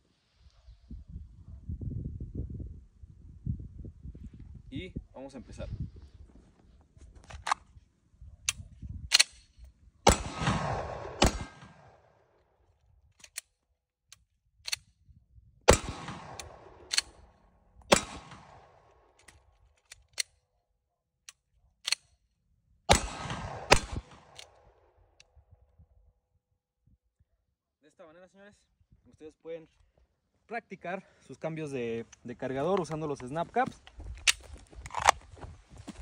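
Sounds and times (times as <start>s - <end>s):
pistol shots: 10.1s - 12.0s, 15.7s - 17.1s, 17.9s - 18.9s, 22.9s - 24.5s
pistol handling clicks: 13.2s - 13.5s, 16.3s - 17.2s.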